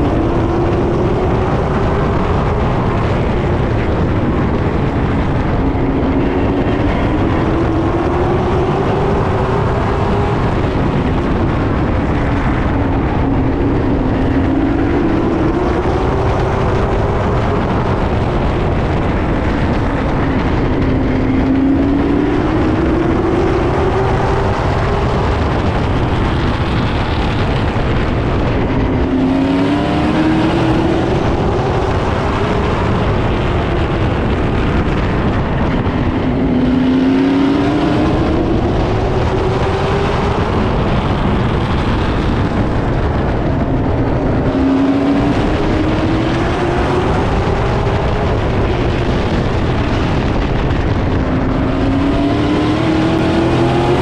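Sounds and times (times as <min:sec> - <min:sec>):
race car engines roaring: 0:00.0 - 0:54.0.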